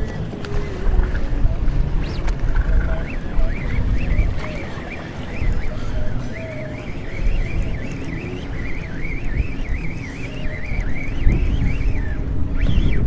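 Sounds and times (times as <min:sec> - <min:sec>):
fishing reel whining: 0:00.0 - 0:13.0
wind buffeting microphone: 0:00.0 - 0:13.0.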